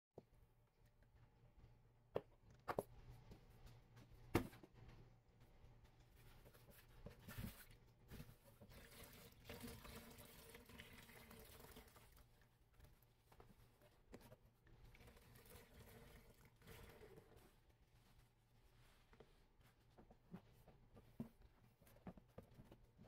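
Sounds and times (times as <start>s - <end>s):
sponge squishing and crackling: 5.8s - 23.0s.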